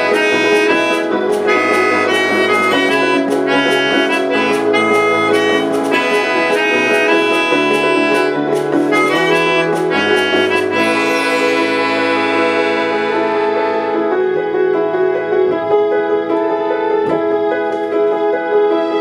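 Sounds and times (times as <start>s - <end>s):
melodica melody: 0.0s - 14.7s
keyboard strings: 0.0s - 19.0s
upright piano: 0.0s - 19.0s.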